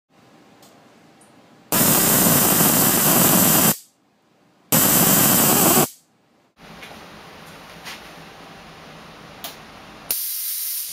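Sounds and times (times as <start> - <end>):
high-voltage electric arcing: 1.7 - 3.9, 4.7 - 6.0.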